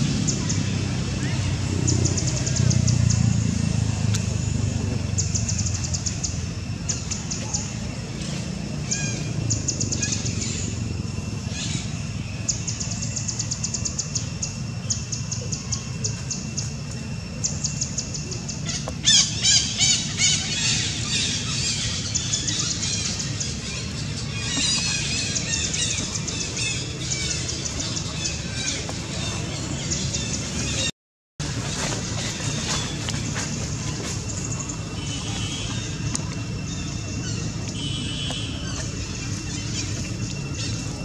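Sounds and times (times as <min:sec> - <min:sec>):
birds chirping and trilling: 0:00.0 - 0:30.9, 0:31.7 - 0:41.0.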